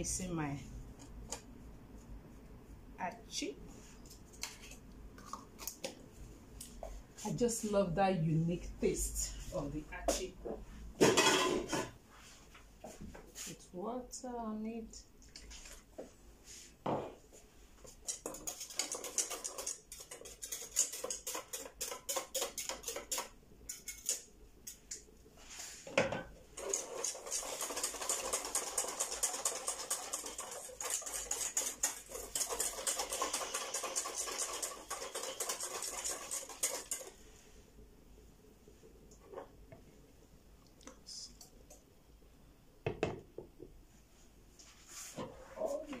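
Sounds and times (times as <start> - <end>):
whisk clicking against bowl: 18.1 - 25.0, 26.6 - 37.1.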